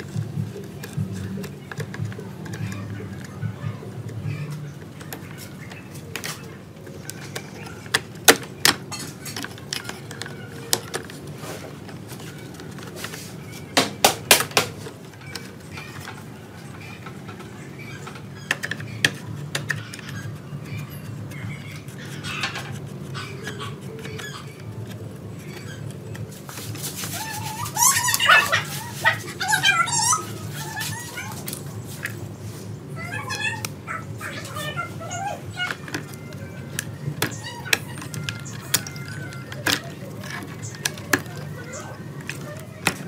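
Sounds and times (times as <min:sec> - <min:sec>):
clicks and rattles of parts: 0:00.0 - 0:28.8, 0:35.5 - 0:43.0
dog whimpering: 0:27.1 - 0:31.5, 0:33.0 - 0:36.6.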